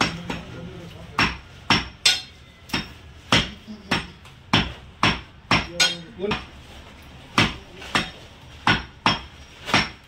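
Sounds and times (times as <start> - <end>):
cleaver chopping meat on wood block: 1.2 - 6.5, 7.4 - 10.0.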